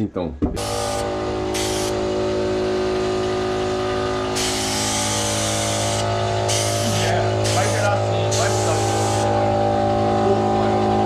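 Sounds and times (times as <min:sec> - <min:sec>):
air compressor motor running: 0:00.5 - 0:11.0
spray gun hissing: 0:00.6 - 0:09.4.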